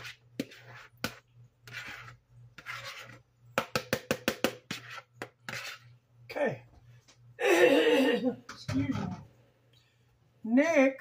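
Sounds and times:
utensil scraping mixing bowl: 0.0 - 6.1
utensil tapping against bowl: 3.6 - 5.4.

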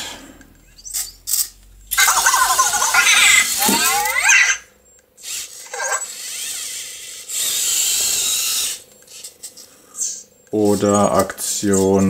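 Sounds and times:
toy robot gear motors whirring: 0.8 - 12.0
electronic voice chirp: 2.0 - 4.7.

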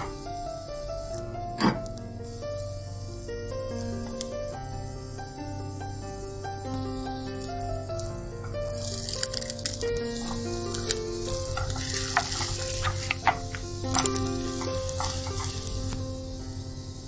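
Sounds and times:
omelettes sizzling in a frying pan: 0.0 - 17.0
wooden spatulas scraping a pan: 10.2 - 15.8.

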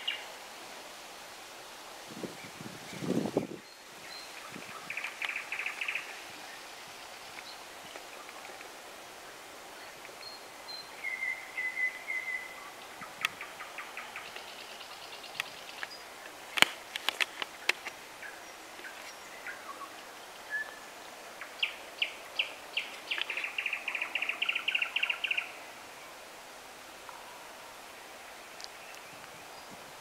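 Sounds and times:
songbirds singing: 2.3 - 8.7, 9.7 - 26.2.

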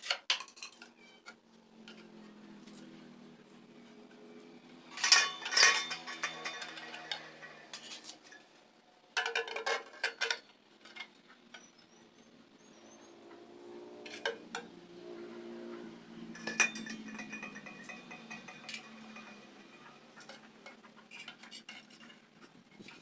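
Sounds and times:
metal exhaust pipe knocking: 16.4 - 21.0.

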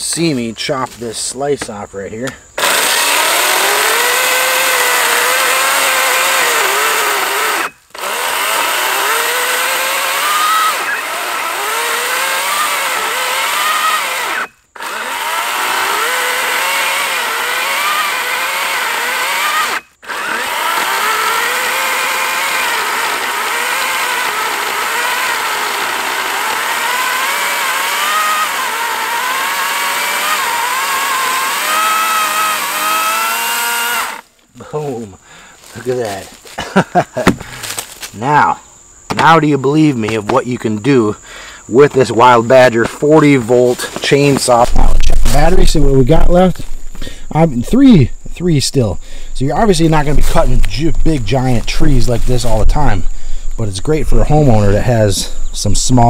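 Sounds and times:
electric chainsaw cutting log: 2.6 - 34.3, 44.2 - 46.4, 49.6 - 52.9.

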